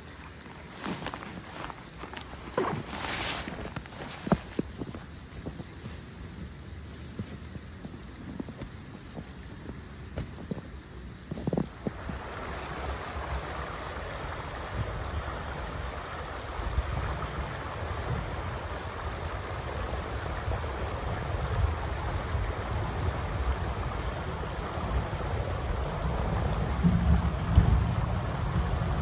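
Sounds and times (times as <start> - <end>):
creek water rushing over rocks: 0.0 - 29.0
low rumble: 23.1 - 29.0.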